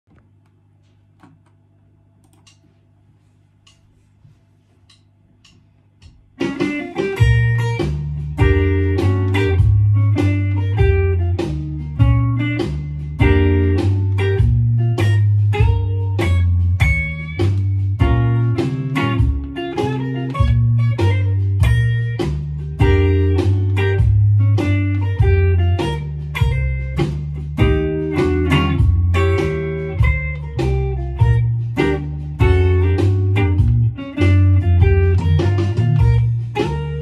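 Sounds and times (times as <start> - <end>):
faint clicks: 2.2 - 2.7
electric guitar blues riff: 6.4 - 37.0.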